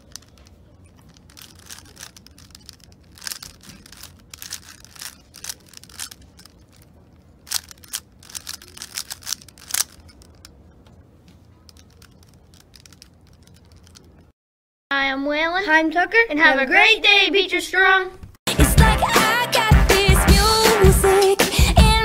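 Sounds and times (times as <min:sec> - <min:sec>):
puzzle cube clicking: 0:00.0 - 0:10.9, 0:11.6 - 0:14.2.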